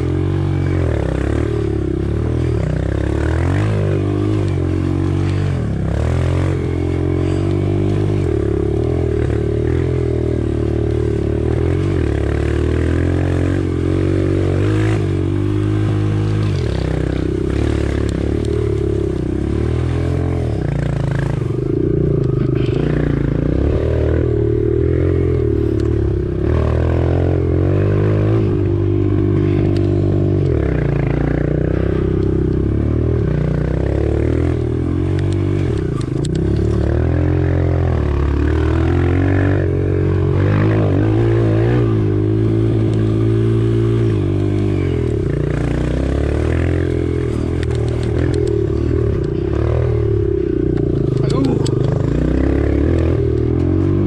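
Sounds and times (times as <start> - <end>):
motorbike engine revving: 0.0 - 54.0.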